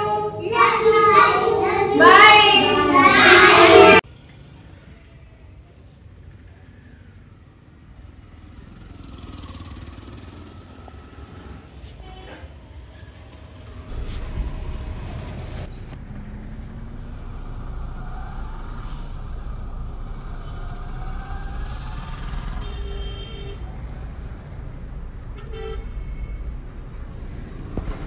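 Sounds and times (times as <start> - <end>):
scooters and motorcycles running: 6.3 - 25.2
vehicle horn tooting: 22.6 - 23.6, 25.4 - 26.5.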